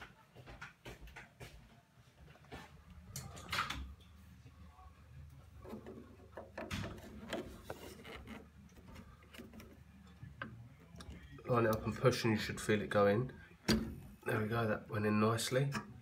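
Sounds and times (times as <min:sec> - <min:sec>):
hands handling boiler parts: 0:05.2 - 0:12.6.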